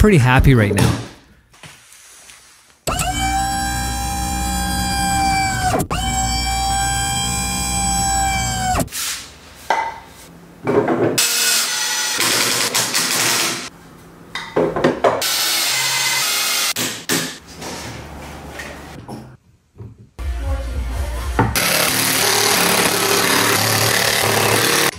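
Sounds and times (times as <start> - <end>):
loud cutting or drilling: 2.9 - 8.9, 11.2 - 13.7, 15.2 - 16.8, 21.6 - 24.9
power tool motor whine: 2.9 - 8.9, 21.6 - 24.9.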